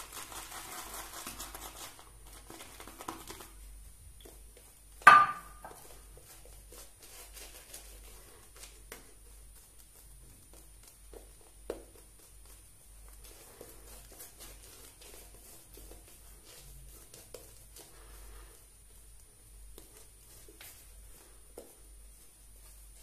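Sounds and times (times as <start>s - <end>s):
shaving brush scrubbing lather: 0.0s - 4.9s, 5.8s - 23.0s
sharp knock with ring: 5.1s - 5.7s.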